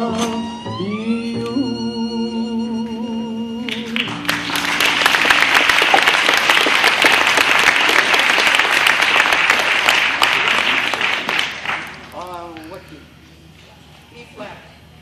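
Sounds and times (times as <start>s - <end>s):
held sung note with vibrato: 0.0s - 3.9s
audience applause: 4.0s - 12.3s.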